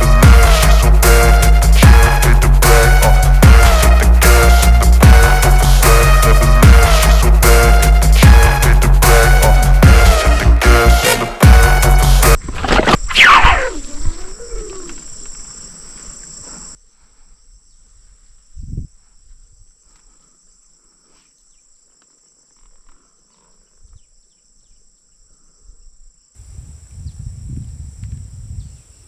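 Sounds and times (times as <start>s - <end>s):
insects droning: 12.4s - 29.0s
loud falling whoosh: 12.9s - 15.0s.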